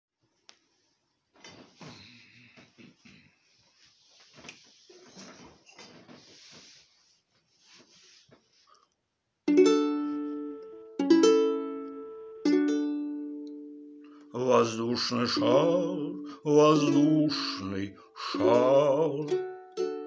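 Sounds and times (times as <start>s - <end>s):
faint rustling and handling noise: 0.2s - 9.1s
ukulele chords strummed: 9.5s - 20.0s.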